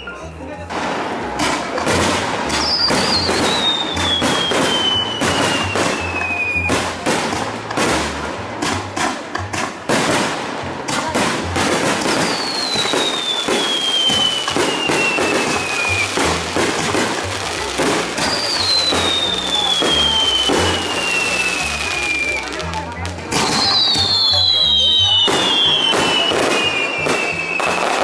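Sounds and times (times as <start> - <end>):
fireworks bangs and crackles: 0.0 - 28.0
descending firework whistle: 2.5 - 6.9, 12.0 - 16.5, 18.1 - 22.7, 23.3 - 28.0.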